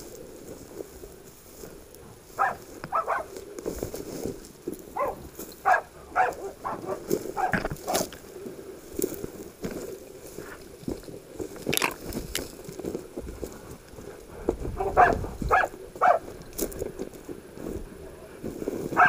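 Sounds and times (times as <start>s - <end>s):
dogs barking: 2.4s - 3.4s, 5.0s - 8.1s, 14.8s - 16.3s
footsteps: 11.7s - 12.5s.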